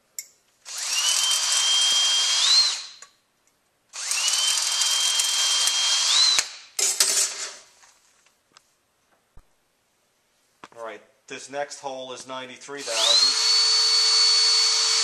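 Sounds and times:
cordless drill drilling steel: 0:00.6 - 0:03.1, 0:03.9 - 0:06.6, 0:12.8 - 0:15.0.

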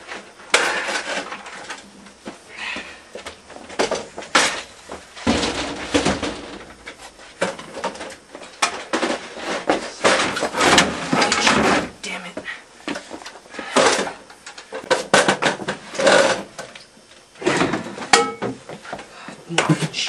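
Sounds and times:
bicycle clattering and banging: 0:03.7 - 0:11.8
metal rattles: 0:05.2 - 0:07.8.

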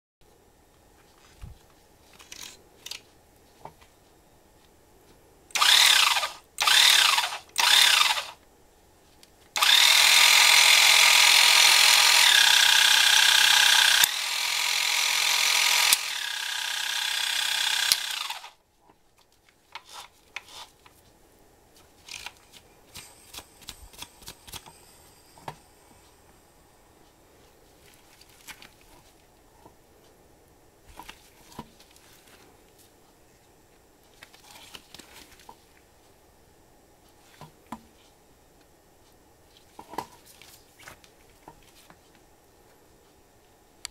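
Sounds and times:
electric fishing reel motor whine: 0:05.6 - 0:08.3, 0:09.6 - 0:18.6
fishing reel clicks: 0:09.6 - 0:18.5.

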